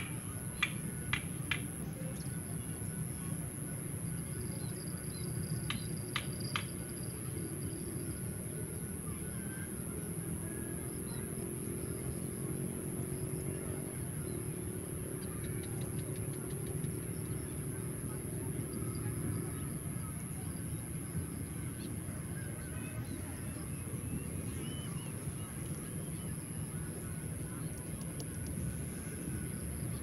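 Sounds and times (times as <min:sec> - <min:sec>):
quick sharp ticks: 0:00.0 - 0:01.7
constant high hiss: 0:00.0 - 0:30.0
steady low rumble: 0:00.0 - 0:30.0.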